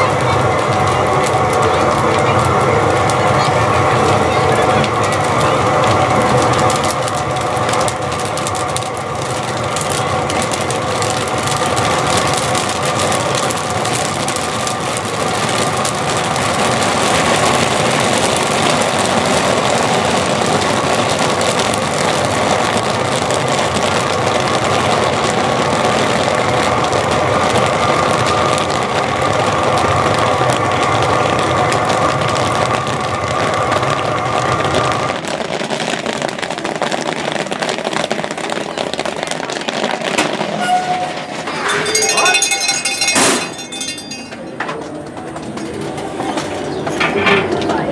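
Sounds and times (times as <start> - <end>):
popping corn crackling: 0.0 - 47.9
propane burner noise: 0.0 - 47.9
steady tone: 41.4 - 44.5.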